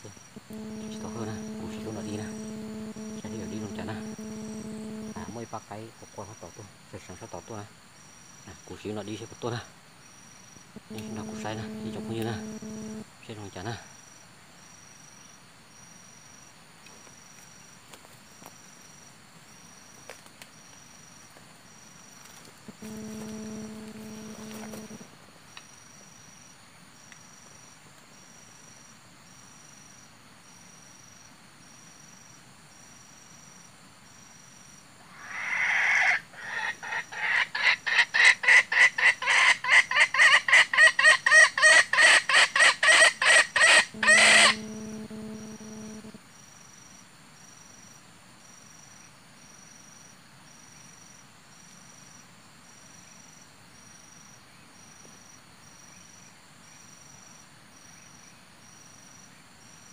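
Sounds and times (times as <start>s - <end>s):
brief low hum: 0.3s - 5.3s, 10.8s - 13.1s, 22.7s - 25.1s, 43.9s - 46.2s
junglefowl clucking call: 35.1s - 45.3s.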